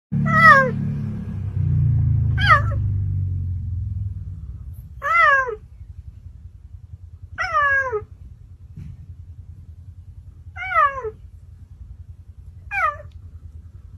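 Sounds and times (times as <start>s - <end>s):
cheetah meowing: 0.2s - 0.8s, 2.4s - 2.8s, 4.8s - 5.7s, 7.4s - 8.2s, 10.5s - 11.2s, 12.6s - 13.2s
low rumble: 0.2s - 13.9s.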